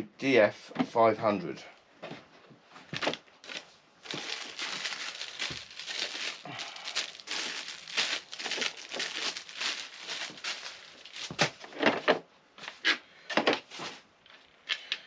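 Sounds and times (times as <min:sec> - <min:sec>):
packaging crinkling and rustling: 0:02.9 - 0:12.0.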